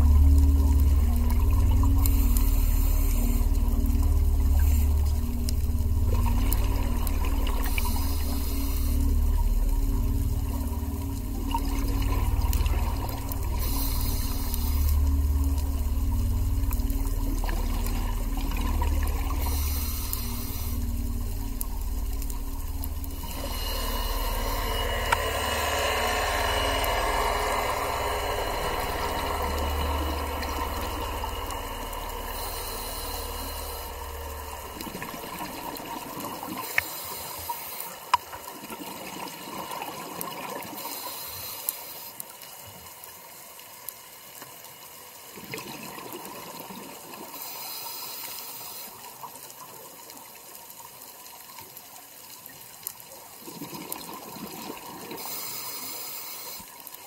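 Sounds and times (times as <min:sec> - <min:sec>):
low rumble: 0:00.0 - 0:36.8
diver regulator bubbles: 0:00.0 - 0:37.0
muffled rush of water: 0:00.0 - 0:57.0.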